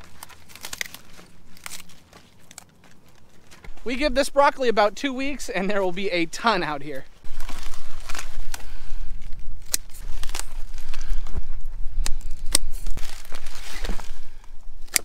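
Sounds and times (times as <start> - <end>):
crisp snapping of stalks: 0.0 - 3.8, 7.2 - 15.0
leaves tearing and rustling: 0.0 - 4.0, 7.0 - 15.0
wind rumble on microphone: 7.2 - 14.9.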